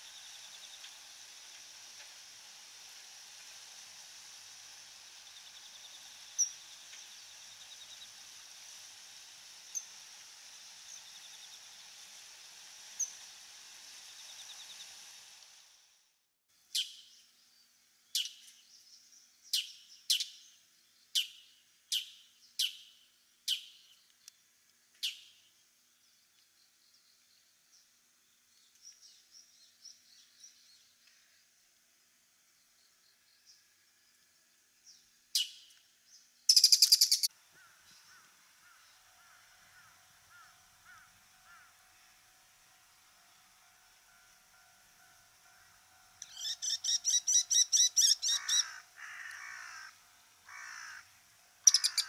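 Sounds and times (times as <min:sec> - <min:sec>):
steady hiss: 0:00.0 - 0:20.9, 0:21.6 - 0:52.0
piercing falling bird calls: 0:46.3 - 0:52.0.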